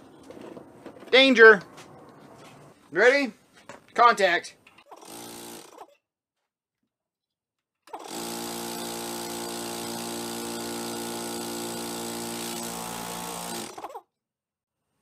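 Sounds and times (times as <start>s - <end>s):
air compressor running: 5.0s - 5.8s, 7.9s - 14.0s.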